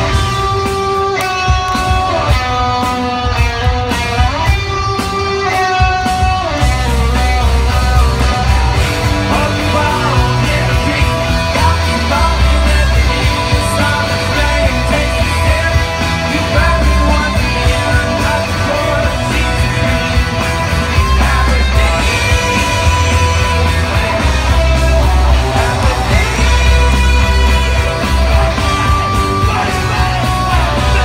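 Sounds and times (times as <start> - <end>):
live rock band playing: 0.0 - 31.0
person singing: 7.4 - 31.0.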